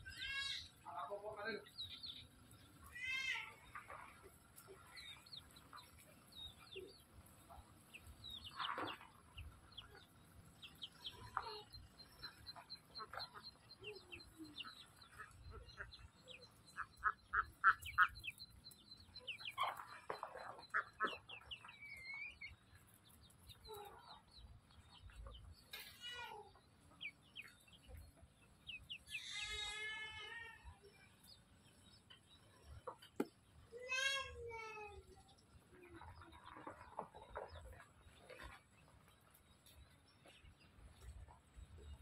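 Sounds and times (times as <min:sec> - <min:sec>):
poultry clucking and calling: 0:02.3 - 0:25.9, 0:26.5 - 0:31.0, 0:35.7 - 0:39.0.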